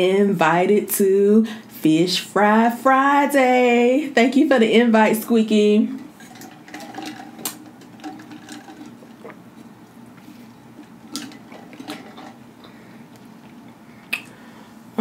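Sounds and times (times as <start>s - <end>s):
faint steady hum: 0.0s - 15.0s
person eating and drinking: 6.0s - 14.4s.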